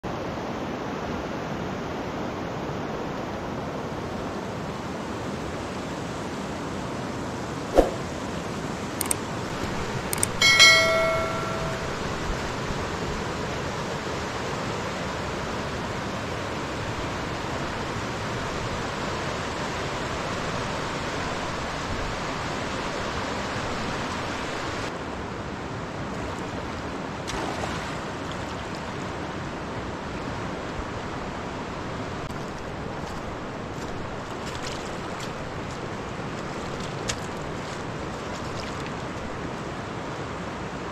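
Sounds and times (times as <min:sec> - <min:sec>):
river rushing: 0:00.1 - 0:40.9
sharp knock: 0:07.8 - 0:08.1
short ringing clink: 0:10.2 - 0:12.2.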